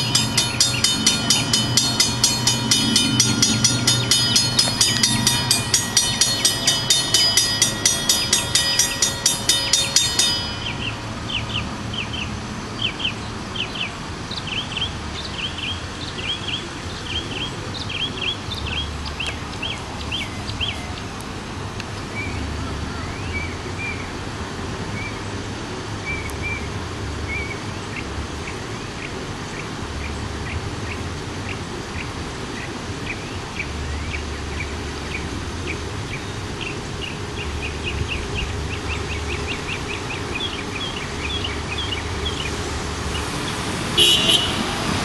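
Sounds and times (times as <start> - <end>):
crossing signal bells ringing: 0.0 - 12.8, 34.2 - 45.0.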